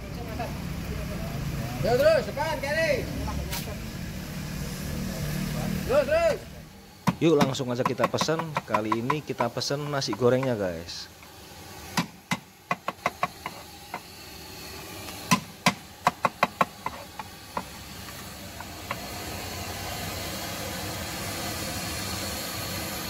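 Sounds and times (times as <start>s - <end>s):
gas burner hissing: 0.0s - 23.0s
cleaver chopping on wooden board: 7.1s - 10.3s, 12.0s - 14.1s, 15.3s - 17.7s.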